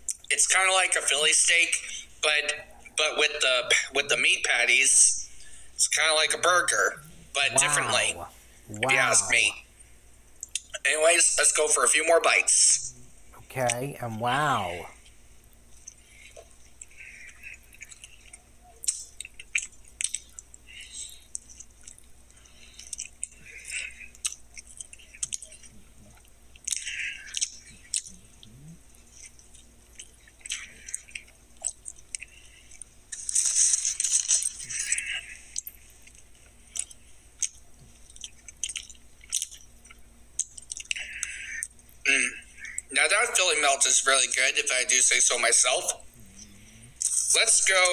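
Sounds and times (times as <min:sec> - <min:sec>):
man chewing crunchy food: 0:15.6 - 0:42.0.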